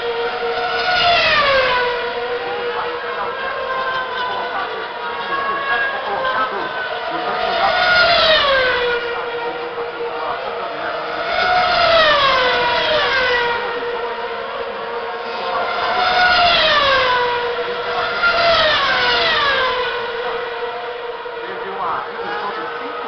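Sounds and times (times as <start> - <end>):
racing cars passing at high revs: 0.0 - 23.0.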